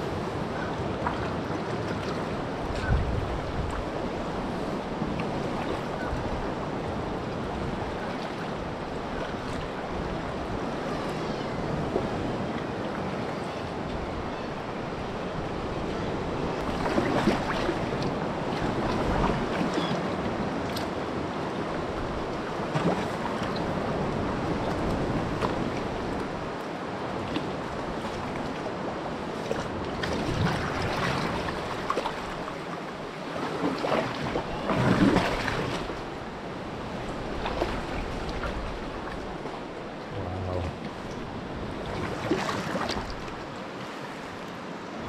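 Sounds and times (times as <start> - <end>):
wind on microphone: 0.0 - 26.5, 34.1 - 43.5
paddle blades splashing in water: 16.6 - 20.0, 29.4 - 36.1, 37.2 - 44.2.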